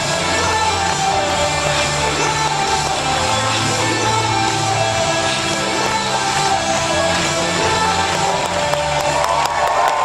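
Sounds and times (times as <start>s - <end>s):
crowd cheering: 6.9s - 10.0s.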